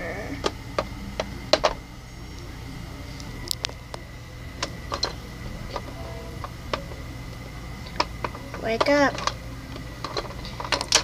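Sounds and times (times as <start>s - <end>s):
low steady hum: 0.0s - 11.0s
plastic toys clicking and tapping: 0.4s - 1.8s, 7.8s - 11.0s.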